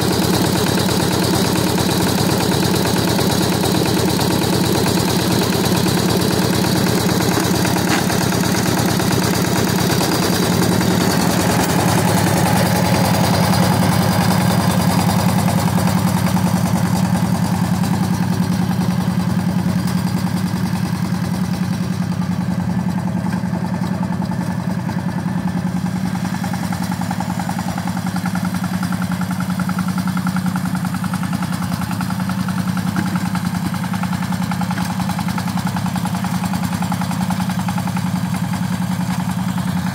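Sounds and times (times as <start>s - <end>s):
diesel tractor engine running: 0.0s - 39.9s.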